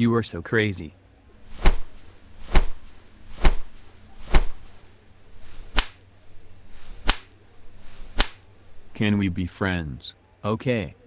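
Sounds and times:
sharp hand slaps: 1.6 - 4.7, 5.6 - 6.0, 7.0 - 7.4, 8.1 - 8.4.

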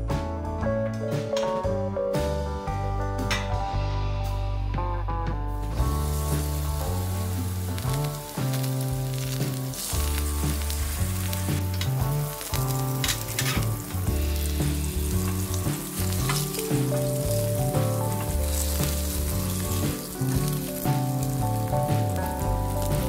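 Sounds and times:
background music with bass: 0.0 - 23.0
frying sizzle with oil pops: 5.7 - 23.0.

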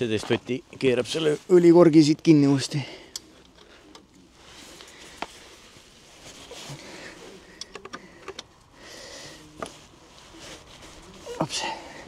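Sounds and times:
faint handling noise: 3.0 - 12.0.

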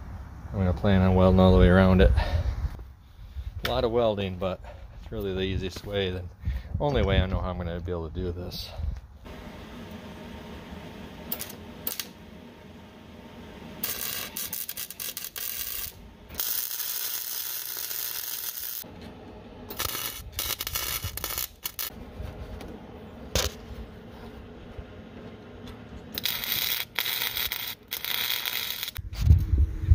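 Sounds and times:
welder arc crackling: 9.3 - 18.9, 19.7 - 23.9, 25.7 - 29.0.

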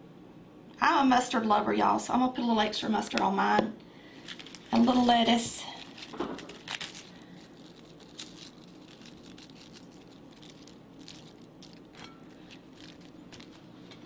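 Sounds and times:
low steady hum: 0.0 - 14.0
lettuce leaves rustling: 4.0 - 14.0.

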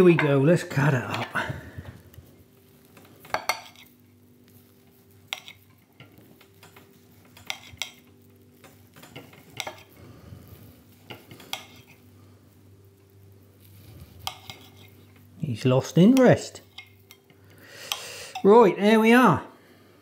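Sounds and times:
knife clicking and scraping plate: 3.0 - 3.9, 5.3 - 10.0, 11.1 - 12.0, 14.2 - 15.0, 16.1 - 17.3.

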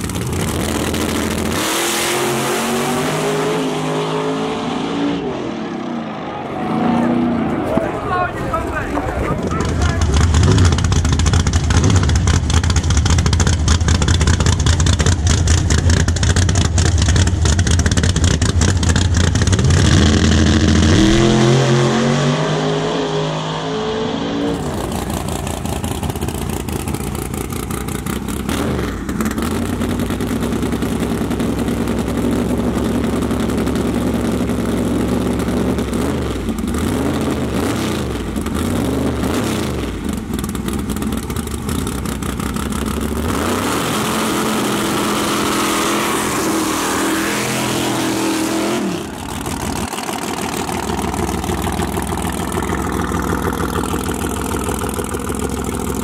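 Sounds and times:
pickup engine revving: 0.0 - 56.0
drag car engine launching: 24.4 - 30.9.

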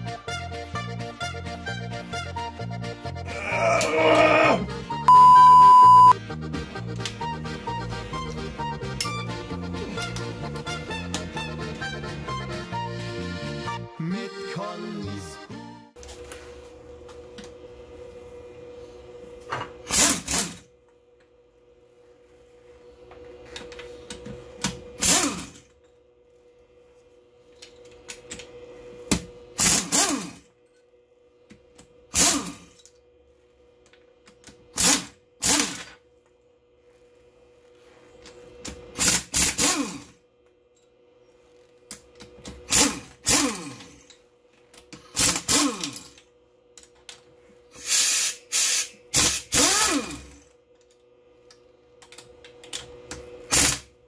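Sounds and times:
cordless drill running in bursts: 25.0 - 25.6, 29.6 - 30.4, 34.8 - 35.8, 39.0 - 40.0, 47.8 - 50.4.

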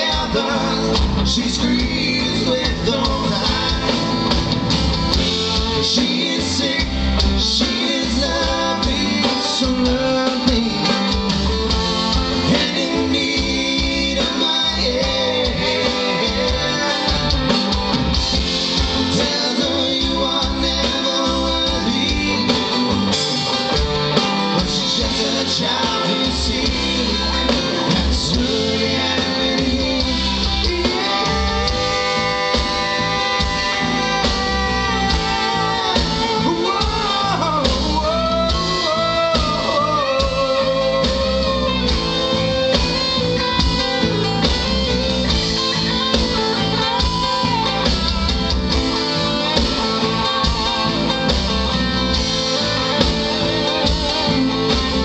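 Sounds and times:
bass guitar: 0.0 - 55.0
drums: 0.0 - 55.0
electric guitar: 0.0 - 55.0
guitar lead with bending notes: 0.0 - 55.0.

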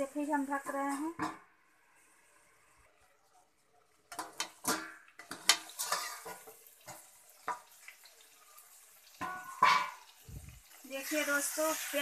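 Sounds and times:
metal lid and utensils clanking: 0.9 - 1.5, 4.1 - 7.7, 9.2 - 10.2.

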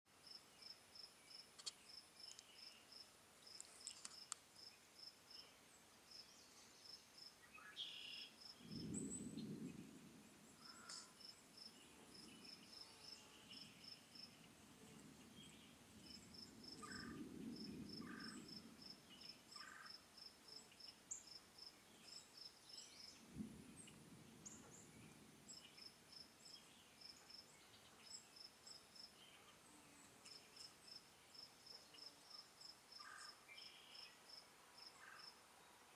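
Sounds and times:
crickets chirping: 0.2 - 5.5, 6.1 - 29.4, 30.2 - 35.6
bird chirps: 7.4 - 9.9
distant thunder rumbling: 8.4 - 12.7, 13.9 - 19.2, 23.2 - 26.4.

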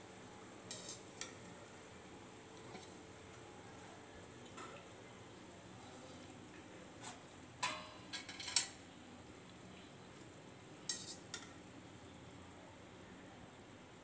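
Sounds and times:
metal skewer clinking on pan: 10.9 - 11.5.

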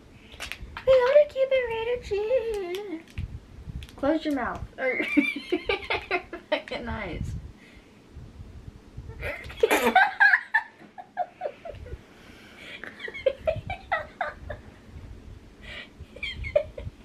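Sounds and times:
teenage girls laughing: 4.9 - 6.8, 9.1 - 12.0, 12.6 - 14.7, 15.7 - 17.0.

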